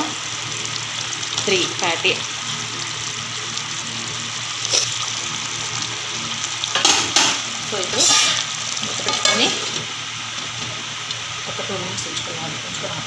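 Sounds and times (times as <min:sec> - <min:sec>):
curry simmering and sizzling: 0:00.0 - 0:13.0
lid going onto pot: 0:06.7 - 0:08.4.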